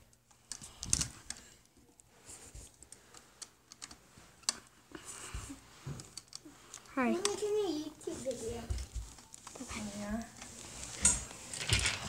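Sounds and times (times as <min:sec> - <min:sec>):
crutches and feet on stairs: 0:00.0 - 0:12.0
handheld camera rustle: 0:02.0 - 0:12.0.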